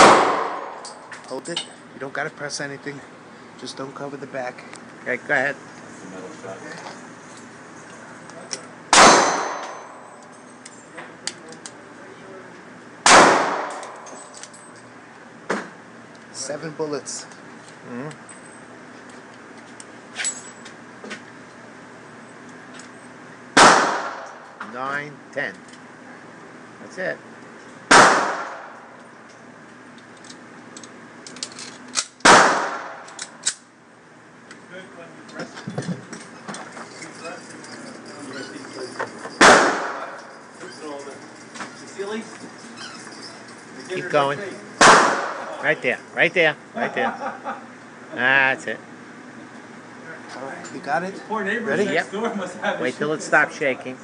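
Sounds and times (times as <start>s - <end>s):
gunshots with echoing decay: 0.0s - 0.8s, 8.9s - 10.0s, 13.0s - 14.0s, 23.6s - 24.4s, 27.9s - 28.8s, 32.2s - 33.1s, 39.4s - 40.2s, 44.8s - 45.5s.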